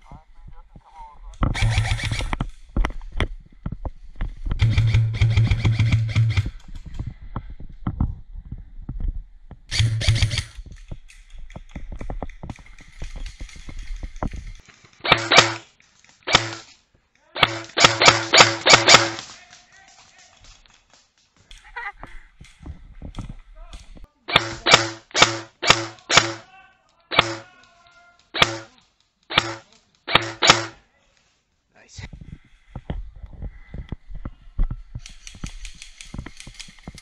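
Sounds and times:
airsoft rifle fire bursts: 0:01.5 - 0:02.4, 0:04.6 - 0:06.6, 0:09.7 - 0:10.6, 0:15.0 - 0:15.6, 0:16.3 - 0:16.7, 0:17.4 - 0:19.3, 0:24.3 - 0:26.5, 0:27.1 - 0:27.5, 0:28.4 - 0:28.7, 0:29.3 - 0:30.8.

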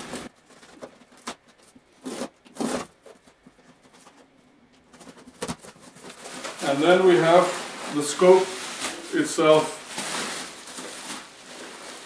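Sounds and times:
knife slitting packing tape: 0:02.0 - 0:02.9
cardboard tearing: 0:02.0 - 0:03.2, 0:05.5 - 0:12.0.

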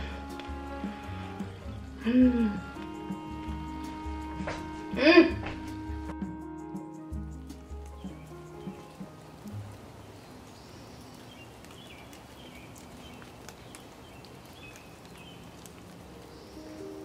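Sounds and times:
rain falling: 0:00.0 - 0:17.0
water drips: 0:06.6 - 0:17.0.

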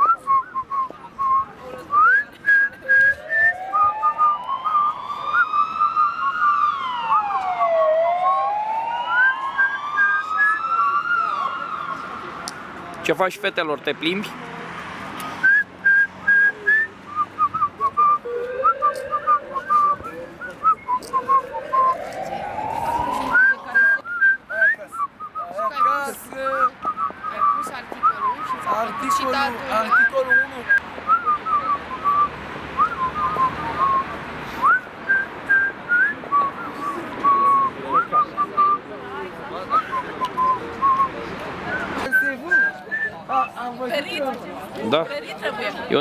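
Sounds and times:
person whistling a tune: 0:00.0 - 0:05.6, 0:15.4 - 0:22.2, 0:23.0 - 0:25.6, 0:26.6 - 0:38.8, 0:39.7 - 0:43.2
rush of noise: 0:18.0 - 0:24.0.

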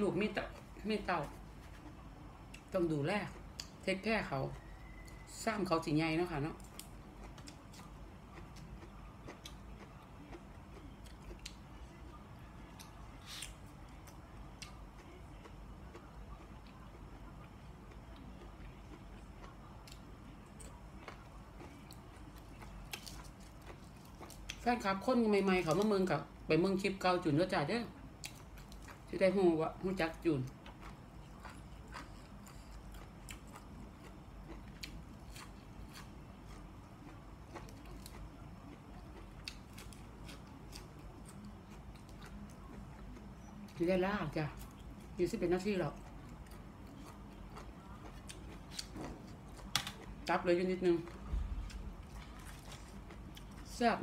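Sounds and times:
person chewing: 0:06.6 - 0:11.6, 0:12.7 - 0:24.6, 0:30.6 - 0:43.7, 0:46.0 - 0:50.3, 0:51.6 - 0:53.7.

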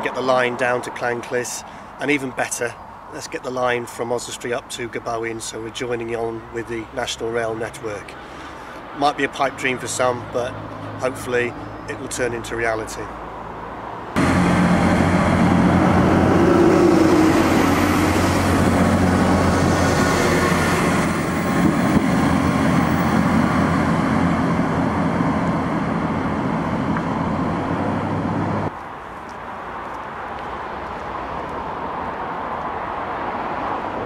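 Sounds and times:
outdoor background: 0:00.0 - 0:34.0
train diesel engines throbbing: 0:14.2 - 0:28.7.

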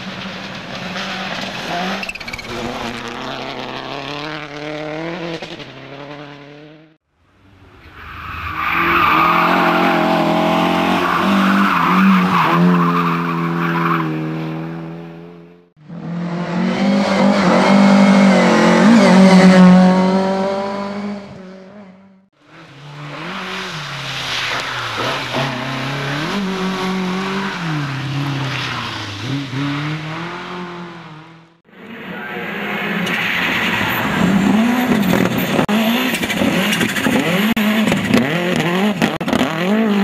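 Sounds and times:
rally car engines revving: 0:00.0 - 0:07.0, 0:07.9 - 0:40.0
tyre squeal: 0:01.7 - 0:03.0.

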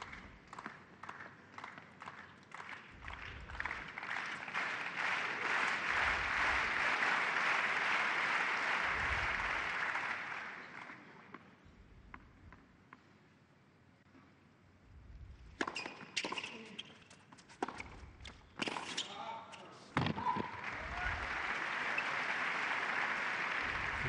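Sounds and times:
crowd applauding: 0:01.6 - 0:11.1, 0:20.6 - 0:24.0.

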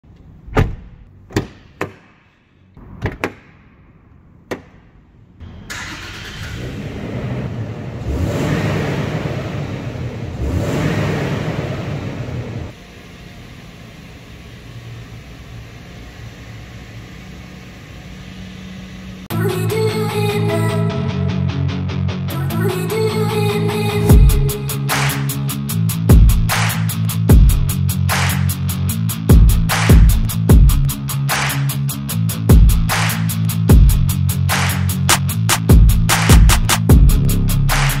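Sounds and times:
car door clicks and knocks: 0:00.5 - 0:02.1, 0:02.8 - 0:03.6, 0:04.4 - 0:04.8
petrol engine starting and idling: 0:05.4 - 0:25.6.

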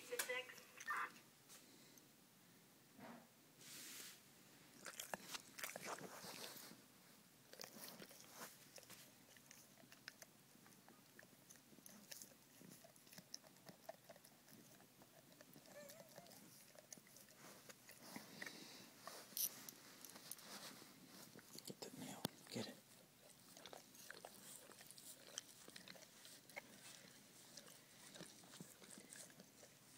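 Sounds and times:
dog chewing claws: 0:04.8 - 0:06.6, 0:07.5 - 0:20.4, 0:22.9 - 0:29.9.

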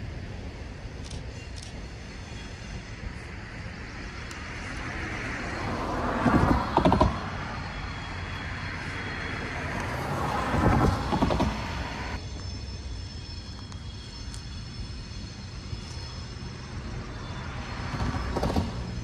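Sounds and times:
train rolling past: 0:00.0 - 0:19.0
wheels clacking over rail joint: 0:05.9 - 0:08.4, 0:09.7 - 0:12.2.

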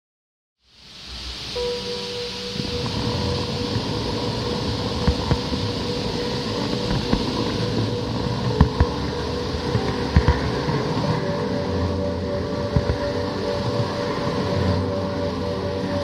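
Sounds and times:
wheels clicking over rail joints: 0:02.8 - 0:11.9.

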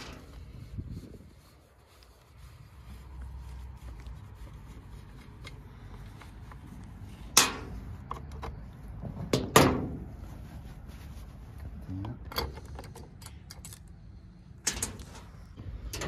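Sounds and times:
cloth rubbing: 0:00.0 - 0:08.9, 0:09.9 - 0:11.9.

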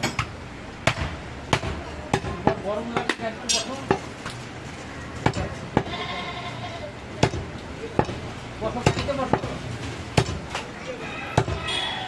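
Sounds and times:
cleaver chopping bone on wood: 0:00.8 - 0:03.2, 0:07.2 - 0:08.2, 0:10.2 - 0:10.6, 0:11.4 - 0:11.6.

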